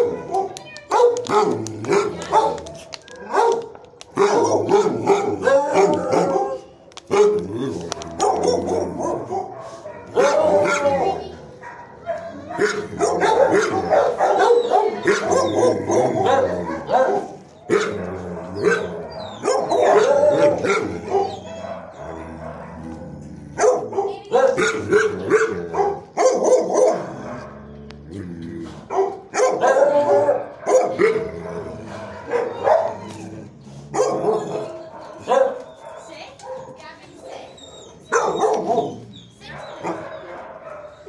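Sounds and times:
dogs barking: 0:00.0 - 0:27.8, 0:28.8 - 0:41.0.

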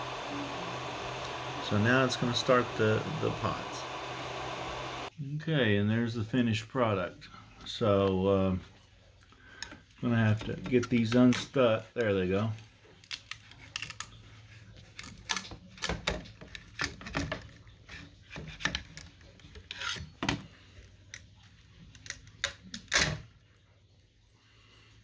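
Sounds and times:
low steady hum: 0:00.0 - 0:05.3
metal scraper scraping and clicking: 0:17.9 - 0:20.1.

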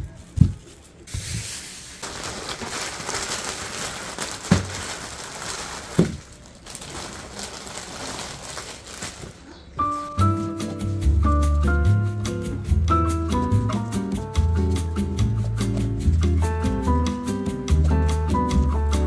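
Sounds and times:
plastic bag crinkling: 0:00.6 - 0:10.2.

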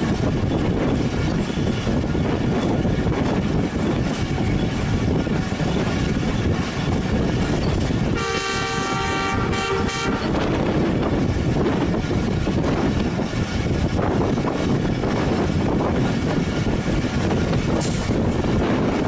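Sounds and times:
moving train running noise: 0:00.0 - 0:19.0
locomotive horn blast: 0:08.1 - 0:10.6.

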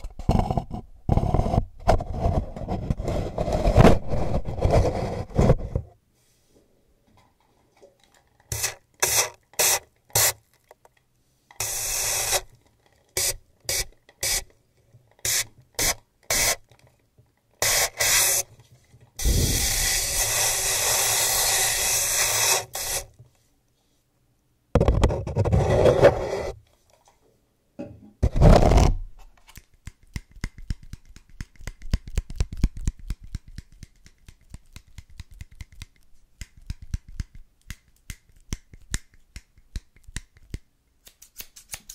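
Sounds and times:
spray bottle misting water: 0:08.5 - 0:10.4
small scissors snipping: 0:40.1 - 0:41.9.

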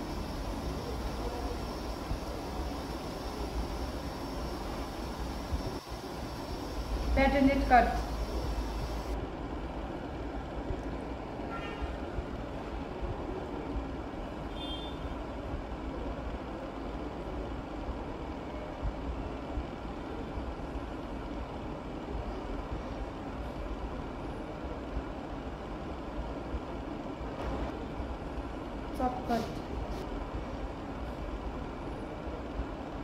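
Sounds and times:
low mechanical rumble and hiss: 0:00.0 - 0:33.0.

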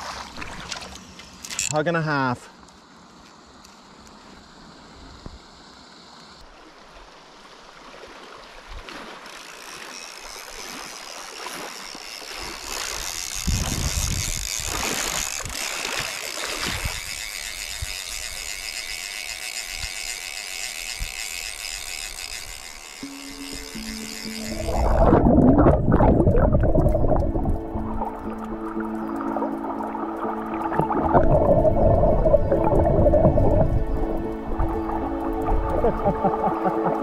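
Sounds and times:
water splashing: 0:00.0 - 0:01.0, 0:06.5 - 0:13.8, 0:23.0 - 0:37.0
fly reel ratcheting: 0:00.8 - 0:02.2, 0:09.1 - 0:25.7, 0:26.6 - 0:37.0
river rushing: 0:24.4 - 0:37.0.

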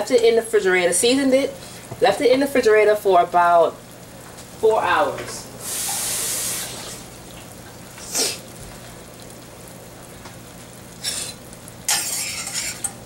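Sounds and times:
water bubbling in a saucepan: 0:03.1 - 0:13.0.

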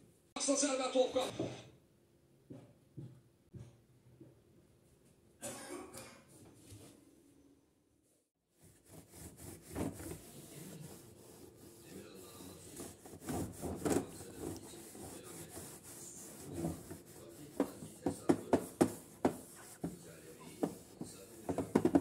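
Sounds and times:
cloth rubbing on clock cover: 0:08.5 - 0:22.0.

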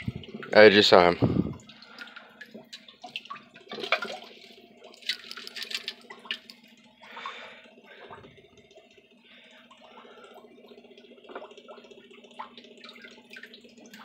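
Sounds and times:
aquarium water sloshing and bubbling: 0:00.0 - 0:14.0
faint steady hum: 0:00.0 - 0:14.0
water splashes and drips: 0:00.0 - 0:14.0.

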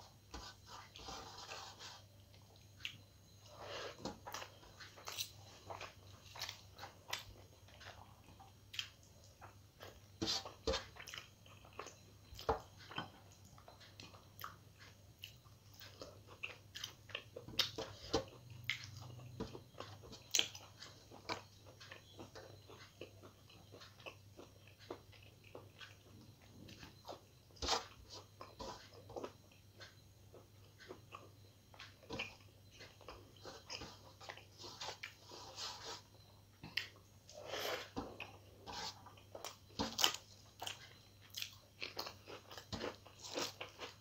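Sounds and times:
person chewing food: 0:00.0 - 0:44.0.

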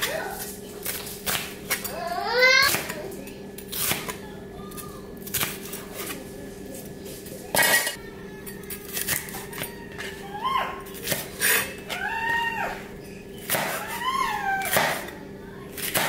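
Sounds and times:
knife chopping on plastic board: 0:02.6 - 0:03.0, 0:13.4 - 0:15.1, 0:15.8 - 0:16.0.

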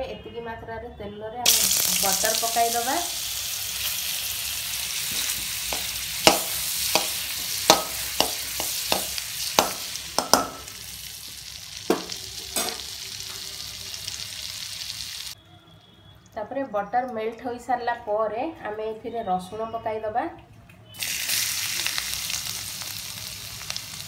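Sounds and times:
butter sizzling in oil: 0:01.5 - 0:15.4, 0:21.0 - 0:24.0
metal spoon clinking against pan: 0:05.1 - 0:10.7, 0:11.9 - 0:12.9.

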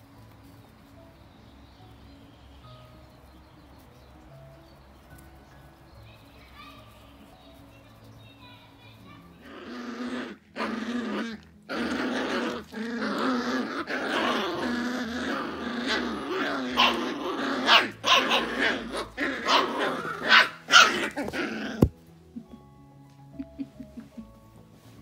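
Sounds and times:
puppies growling: 0:09.2 - 0:22.5
puppies yipping and barking: 0:09.4 - 0:21.9.

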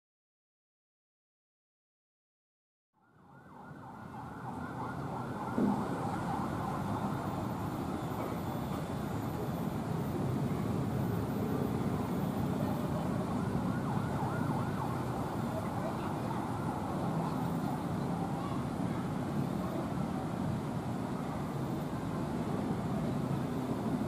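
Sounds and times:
diesel locomotive running: 0:05.6 - 0:24.0.

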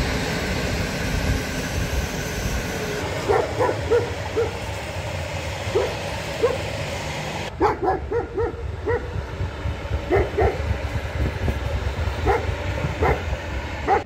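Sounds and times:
passing train rumble: 0:00.0 - 0:14.0
dog barking: 0:03.2 - 0:04.6, 0:05.7 - 0:06.7, 0:07.6 - 0:09.1, 0:10.1 - 0:10.7, 0:12.2 - 0:13.3.

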